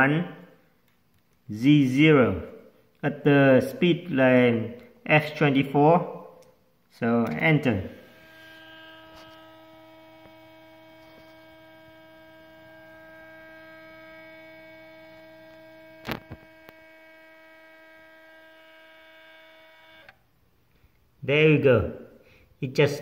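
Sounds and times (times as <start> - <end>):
stepper motor whine: 7.9 - 20.3.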